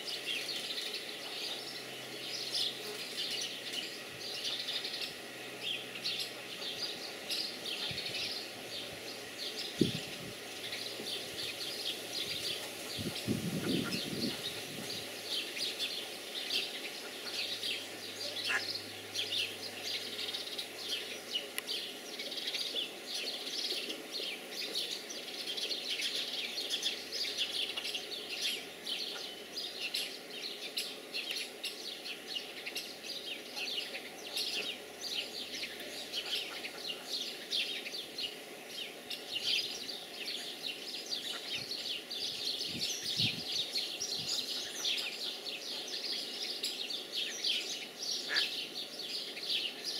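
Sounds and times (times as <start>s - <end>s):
ducklings peeping: 0.1s - 49.9s.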